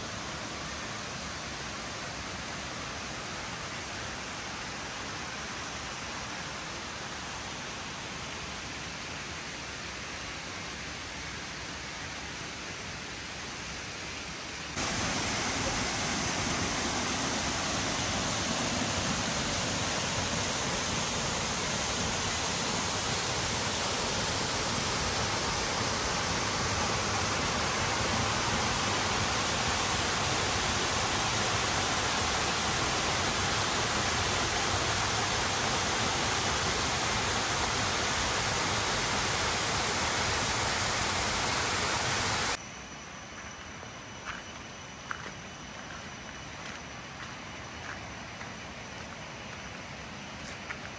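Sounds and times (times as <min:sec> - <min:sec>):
waterfall rushing: 0:14.8 - 0:42.6.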